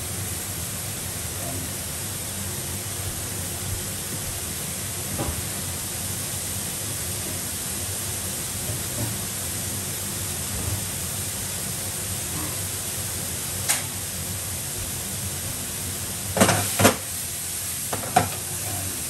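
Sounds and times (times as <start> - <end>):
mushrooms sizzling in a pan: 5.5 - 19.0.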